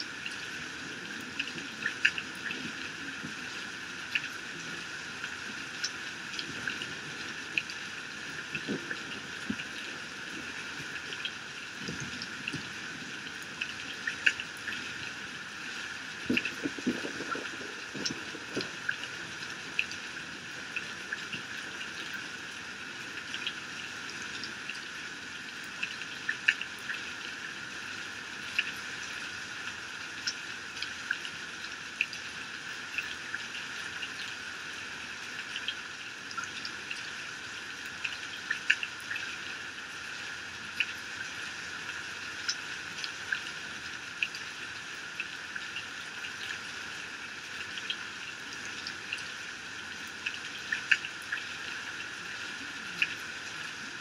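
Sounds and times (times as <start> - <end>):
raindrops ticking: 0.0 - 27.7, 47.8 - 54.0
heavy rain pouring off roof: 0.0 - 54.0.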